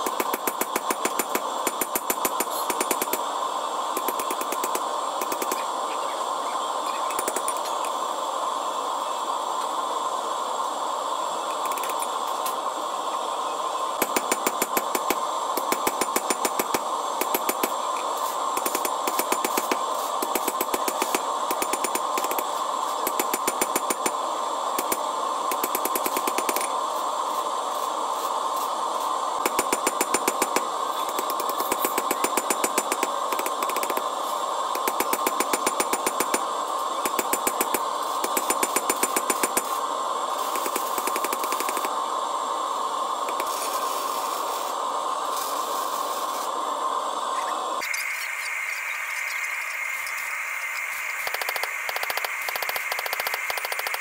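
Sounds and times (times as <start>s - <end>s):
steady hum: 0.0s - 54.0s.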